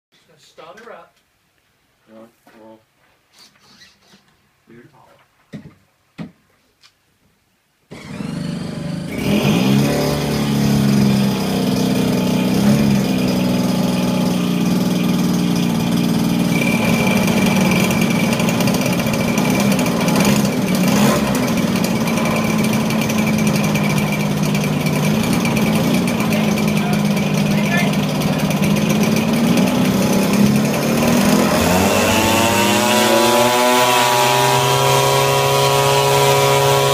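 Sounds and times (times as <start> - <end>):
model aircraft engine running: 7.9 - 36.9.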